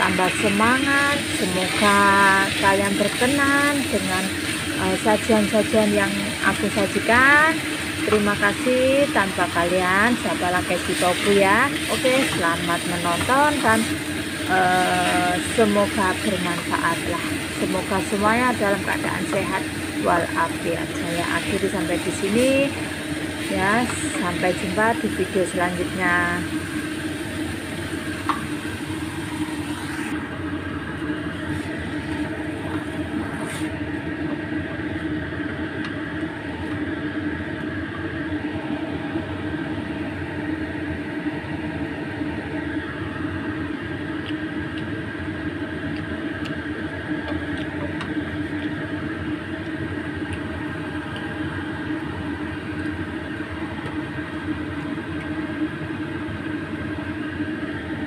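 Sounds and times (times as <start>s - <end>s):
water hissing in hot pan: 0.0s - 30.2s
food stir-frying in a pan: 0.0s - 37.8s, 38.4s - 58.0s
mechanical kitchen hum: 0.0s - 58.0s.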